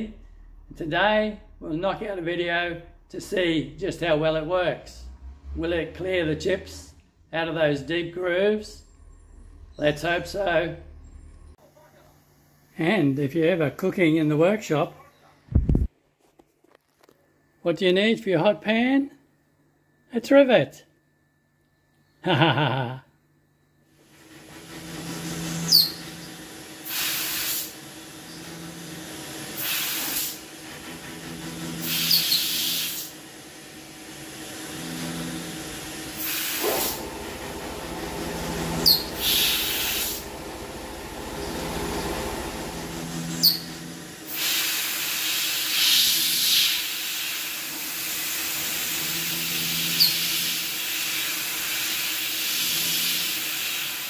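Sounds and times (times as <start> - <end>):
router drilling plywood: 24.0 - 54.0
compressed air hissing: 24.1 - 54.0.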